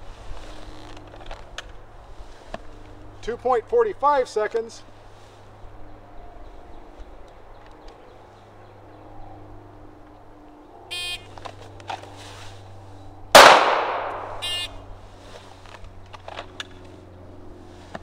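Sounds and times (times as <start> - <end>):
pistol shot with echo: 13.4 - 14.4.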